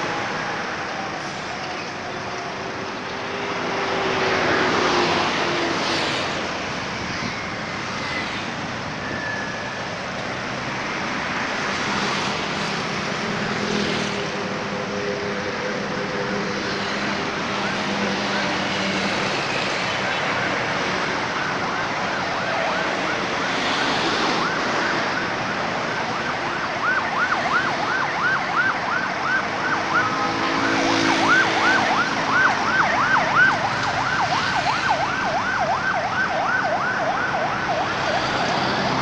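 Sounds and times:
road traffic noise: 0.0s - 39.0s
siren yelping: 20.7s - 39.0s.

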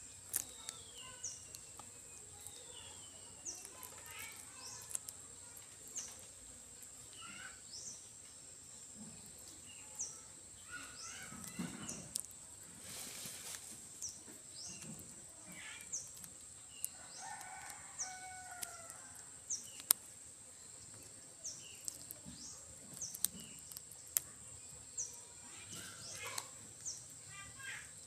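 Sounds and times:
high insect drone: 0.0s - 28.0s
sharp clicks: 14.0s - 20.1s, 21.0s - 24.3s
rooster crowing: 17.2s - 19.1s.

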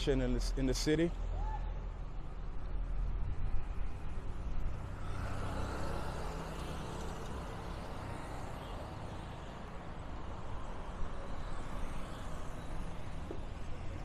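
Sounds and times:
street traffic noise: 0.0s - 14.0s
motorcycles passing: 3.9s - 14.0s.

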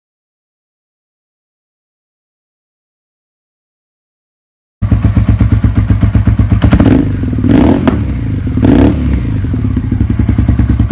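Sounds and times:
motorcycle engine revving: 4.8s - 10.9s.

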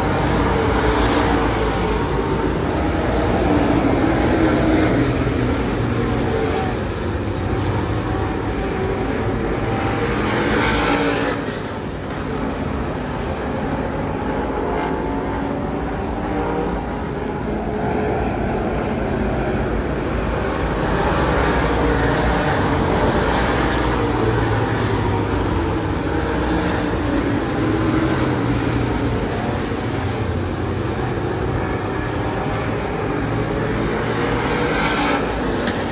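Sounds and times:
race car engines passing: 0.0s - 35.9s.

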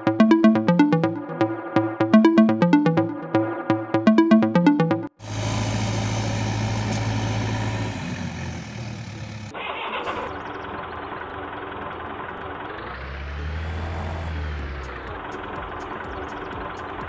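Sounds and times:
vehicle engine running: 5.2s - 9.6s, 10.3s - 17.0s.

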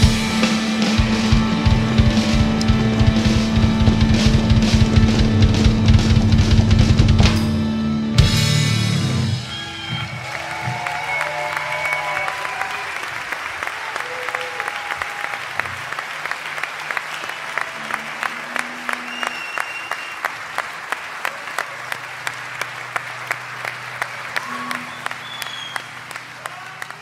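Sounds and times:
audience applauding and cheering: 0.0s - 7.2s, 9.3s - 27.0s
rhythmic clapping: 0.0s - 7.5s, 10.1s - 27.0s
whistles: 18.8s - 20.4s, 24.4s - 26.2s.

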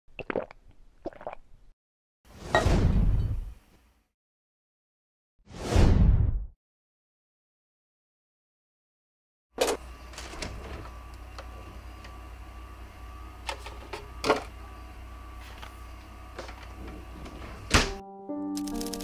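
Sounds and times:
refrigerator humming: 9.6s - 18.0s
fridge door thumping shut: 17.7s - 18.0s.

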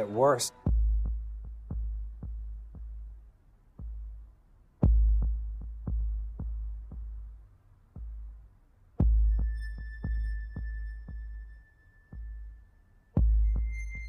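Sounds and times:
deep sub-bass booms: 0.7s - 7.4s, 8.0s - 11.6s.

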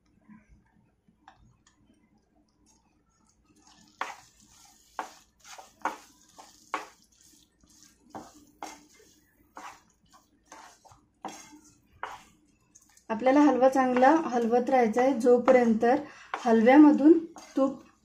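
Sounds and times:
spoon scraping and knocking pan: 3.9s - 14.6s, 15.4s - 17.8s.

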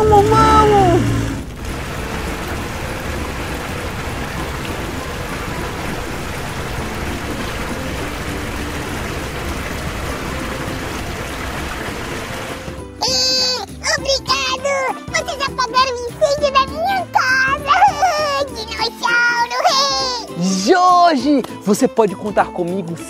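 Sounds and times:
water spray hissing: 0.0s - 13.4s.

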